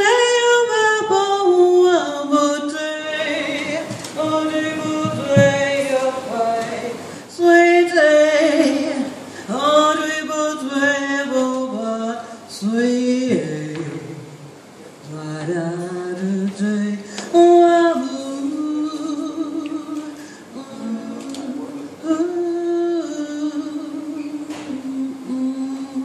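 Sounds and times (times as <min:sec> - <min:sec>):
woman singing into a microphone: 0:00.0 - 0:12.0, 0:17.2 - 0:26.0.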